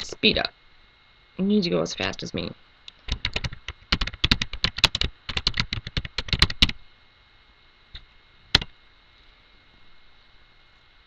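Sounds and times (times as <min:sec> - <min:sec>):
typing on computer keyboard: 0:03.0 - 0:06.8.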